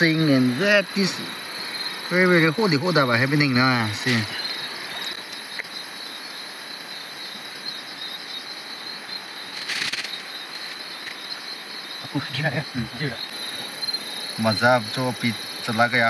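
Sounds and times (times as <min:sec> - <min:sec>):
insects trilling: 0:00.0 - 0:16.0
rustling: 0:09.5 - 0:11.2.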